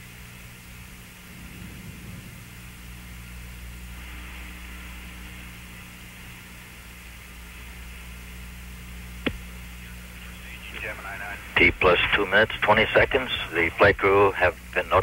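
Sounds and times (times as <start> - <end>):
low mains hum: 0.0 - 15.0
line hiss: 0.1 - 14.5.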